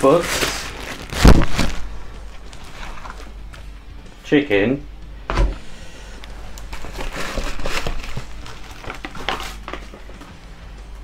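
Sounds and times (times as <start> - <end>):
food packaging rustling: 0.0 - 3.5, 6.5 - 10.4.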